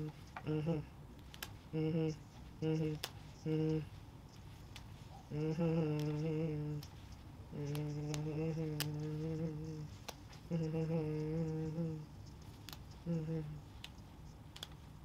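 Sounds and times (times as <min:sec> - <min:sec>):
man humming low notes: 0:00.0 - 0:01.0, 0:01.7 - 0:04.0, 0:05.2 - 0:06.9, 0:07.5 - 0:12.2, 0:12.9 - 0:13.8.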